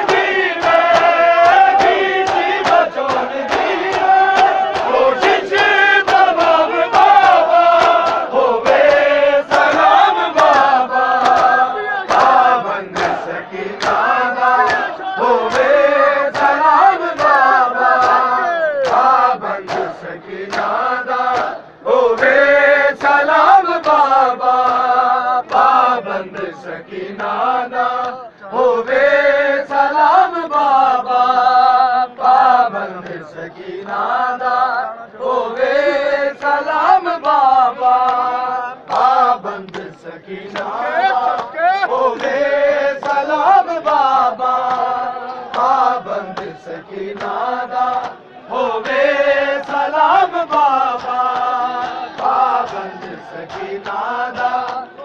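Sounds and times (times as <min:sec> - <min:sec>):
crowd of men chanting in unison: 0:00.0 - 0:55.0
lead singer chanting lament: 0:00.0 - 0:55.0
rhythmic chest-beating slaps: 0:00.0 - 0:55.0.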